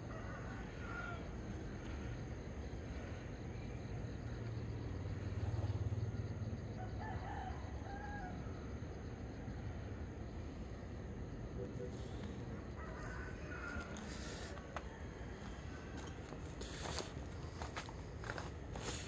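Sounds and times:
distant rooster crowing: 0.0s - 2.2s, 6.6s - 9.9s, 12.0s - 17.1s.

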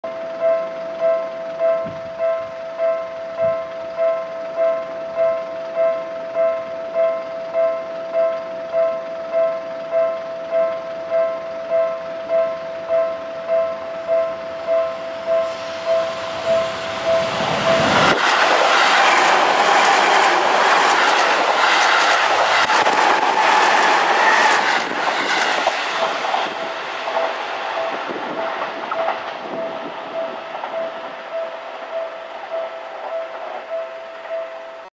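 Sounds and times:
electric train passing: 0.0s - 34.9s
train wheels clacking over rail joints: 15.3s - 34.4s.

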